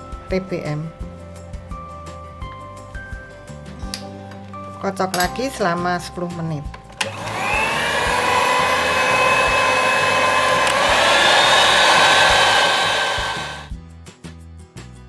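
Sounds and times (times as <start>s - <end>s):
soft background music: 0.0s - 10.9s
electric hand mixer whisking batter: 7.0s - 13.7s.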